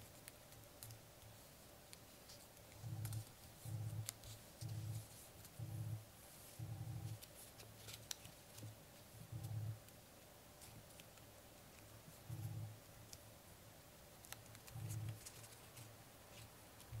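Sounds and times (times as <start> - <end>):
paper being folded and creased: 6.4 - 9.6, 14.2 - 17.0.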